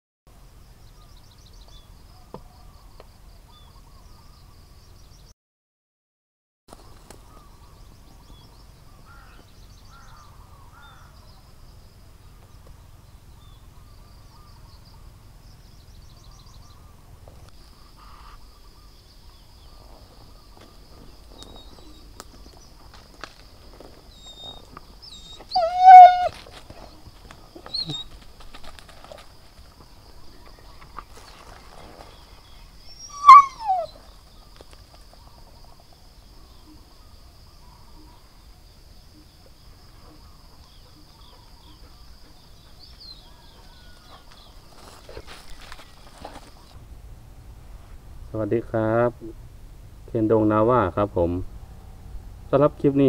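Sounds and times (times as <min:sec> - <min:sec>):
insect trilling: 0:17.6 - 0:19.0, 0:20.3 - 0:26.7, 0:27.4 - 0:29.2, 0:30.1 - 0:38.2
faint chirping: 0:24.1 - 0:28.4, 0:29.9 - 0:46.8
harsh animal call: 0:25.2 - 0:26.5, 0:33.0 - 0:34.0.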